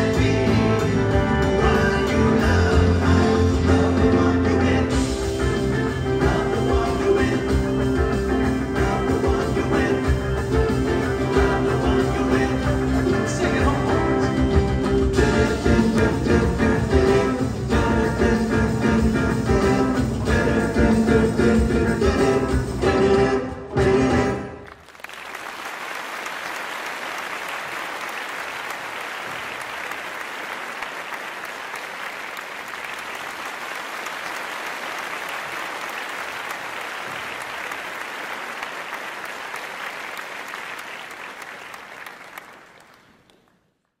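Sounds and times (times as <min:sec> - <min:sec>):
audience applauding: 0:24.4 - 0:43.9.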